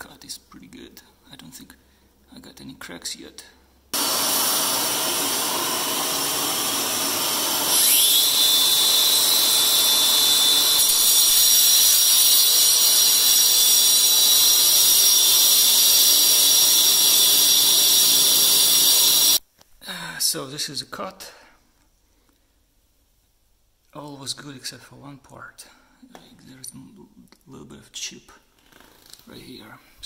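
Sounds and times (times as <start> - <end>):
angle grinder cutting tile: 4.0 - 19.4
shop vacuum running: 4.0 - 19.4.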